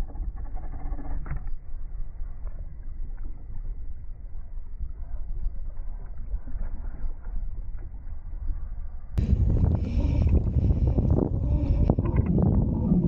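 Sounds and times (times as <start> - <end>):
wind on microphone: 9.2 - 13.0.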